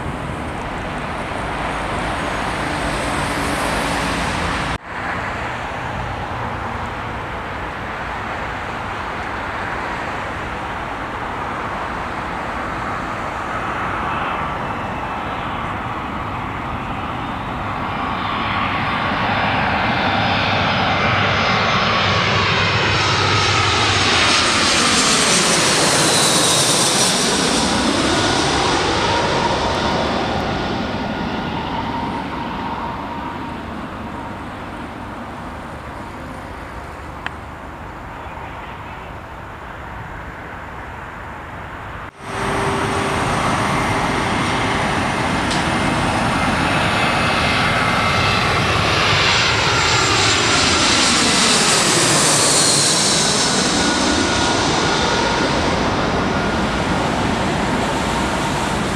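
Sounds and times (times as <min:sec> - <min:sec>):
bus passing: 0:00.0 - 0:19.2, 0:25.3 - 0:49.0
jet airliner engine whine: 0:00.0 - 0:58.9
road traffic: 0:00.0 - 0:58.9.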